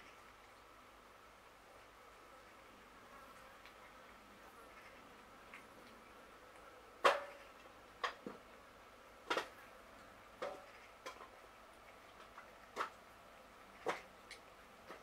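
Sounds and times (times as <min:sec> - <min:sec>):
cats eating from dish: 0:03.6 - 0:06.6, 0:09.3 - 0:15.0.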